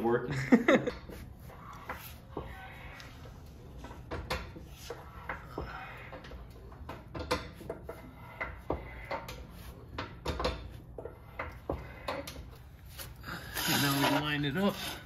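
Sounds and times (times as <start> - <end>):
floor jack pumping clicks and clanks: 3.8 - 12.6.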